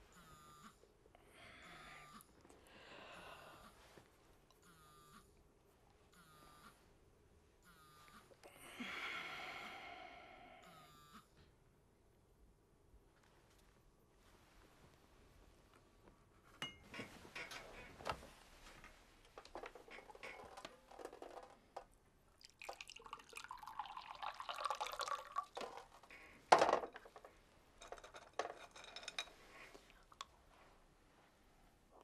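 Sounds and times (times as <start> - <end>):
glassware clinking: 16.6 - 16.9, 27.8 - 29.4
liquid pouring into glass: 22.4 - 26.0.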